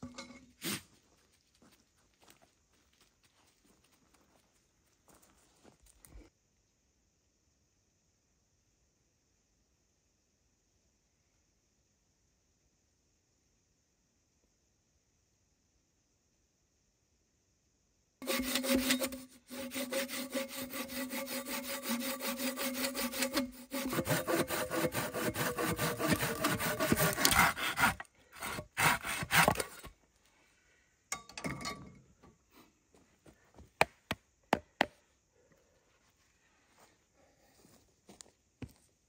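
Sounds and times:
hand saw cutting wood: 0:18.2 - 0:29.9.

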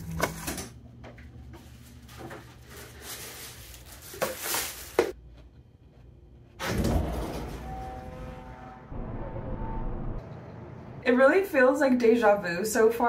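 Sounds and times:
plastic bag rustling: 0:01.6 - 0:05.2.

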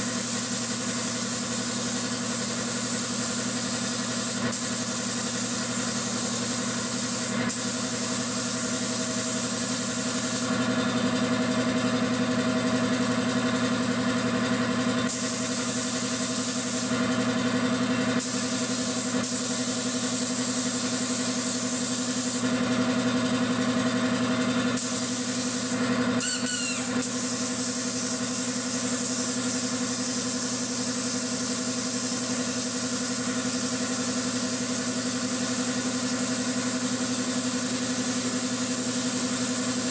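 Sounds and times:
spray gun hissing: 0:00.0 - 0:10.5, 0:15.1 - 0:17.0, 0:18.2 - 0:22.4, 0:24.8 - 0:39.9
air compressor humming: 0:00.0 - 0:39.9.

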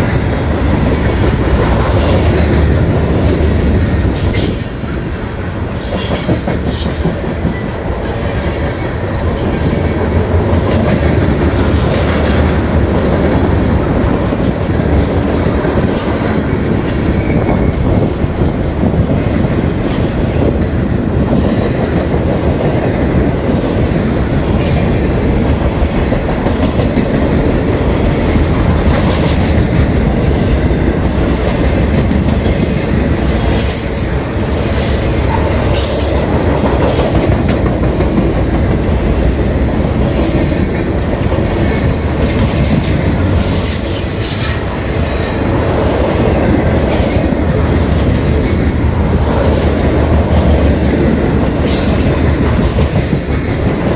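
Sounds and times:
steel wheels rumbling on rail: 0:00.0 - 0:53.9.

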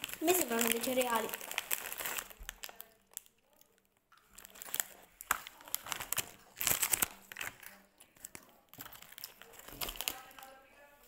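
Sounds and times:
plastic wrapper crinkling: 0:00.0 - 0:11.0.

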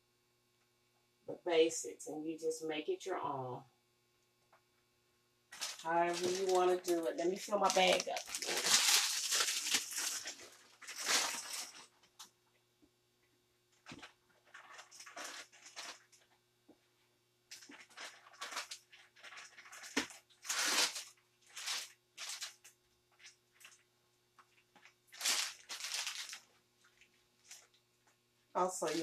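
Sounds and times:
plastic piping bag crinkling: 0:05.5 - 0:12.3, 0:13.8 - 0:16.4, 0:17.5 - 0:27.8, 0:28.6 - 0:29.0.

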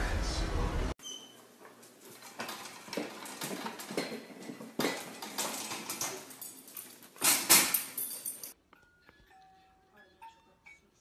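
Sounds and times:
metal pet gate rattling: 0:02.2 - 0:08.6.

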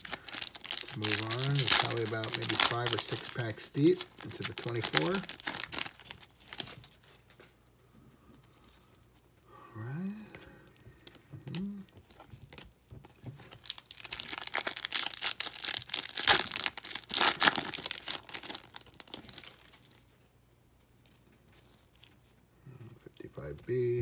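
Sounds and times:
wrapper tearing and crinkling: 0:00.0 - 0:07.2, 0:13.5 - 0:20.1.

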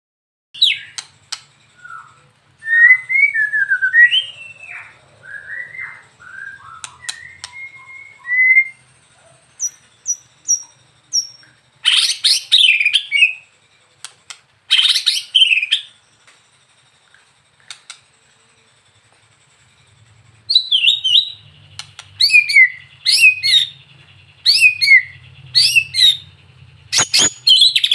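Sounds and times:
bird singing fluty whistles: 0:00.6 - 0:01.0, 0:01.7 - 0:13.5, 0:14.7 - 0:16.1, 0:20.4 - 0:27.9
harsh rattling bird call: 0:00.6 - 0:27.9.

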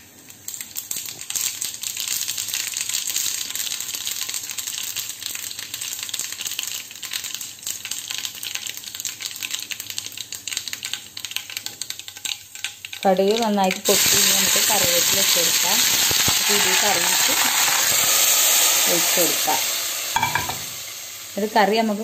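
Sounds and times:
seeds spluttering in hot oil: 0:00.0 - 0:22.0.

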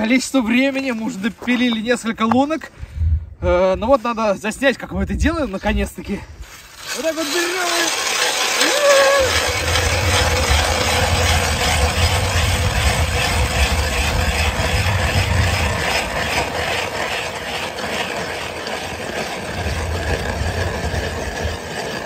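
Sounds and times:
ice auger grinding through ice: 0:06.4 - 0:22.0.

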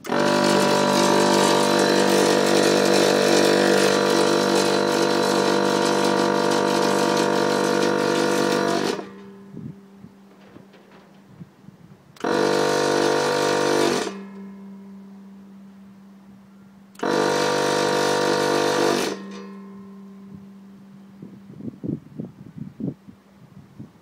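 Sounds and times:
electric vacuum pump whining: 0:00.0 - 0:15.0, 0:16.9 - 0:20.5
steady low hum: 0:00.0 - 0:24.0.

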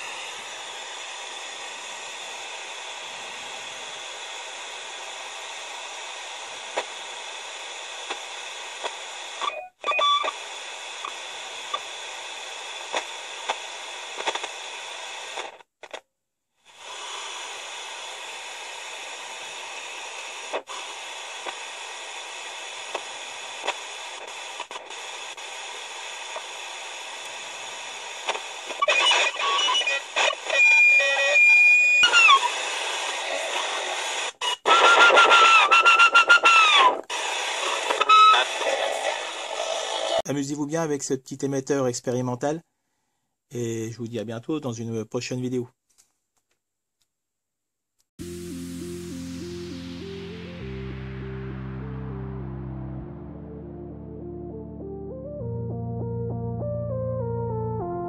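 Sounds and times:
radio static hiss: 0:00.0 - 0:16.0, 0:16.7 - 0:40.9
wavering squealing radio whistles: 0:28.8 - 0:32.6, 0:34.4 - 0:37.0, 0:37.6 - 0:40.2.

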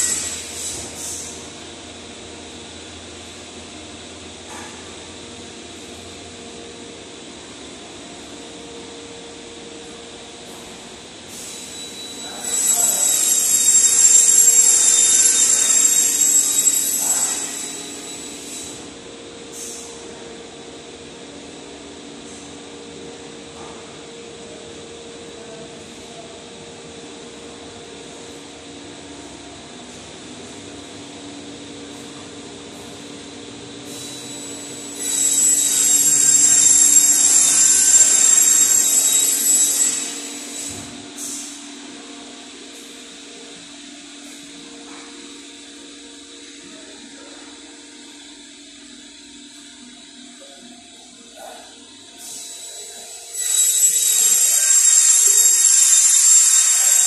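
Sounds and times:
power tool hissing and whining: 0:00.0 - 0:01.4, 0:11.3 - 0:18.9, 0:33.8 - 0:41.7, 0:50.9 - 0:57.0
small machine whining: 0:00.0 - 0:57.0.

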